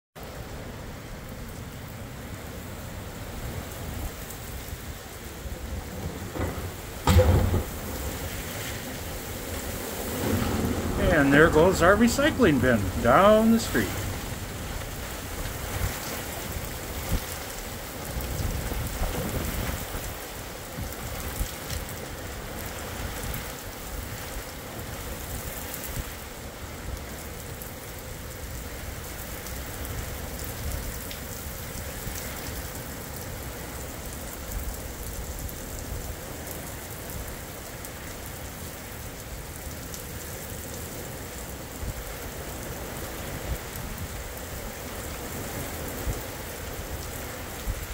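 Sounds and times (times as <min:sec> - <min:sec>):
torrential rain pouring: 0:00.2 - 0:47.9
low thunder rumble: 0:05.5 - 0:17.4.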